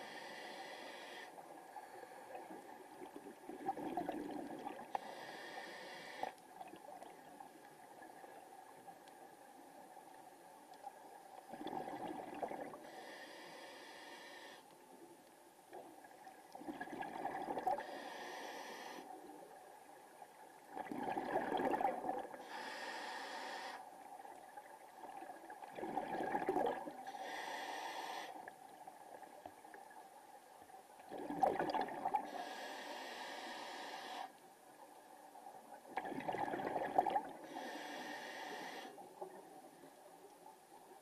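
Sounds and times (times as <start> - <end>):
diver breathing through regulator: 0.0 - 2.1, 4.9 - 6.4, 12.8 - 14.6, 17.7 - 19.1, 22.4 - 23.9, 27.0 - 28.5, 32.3 - 34.4, 37.4 - 39.0.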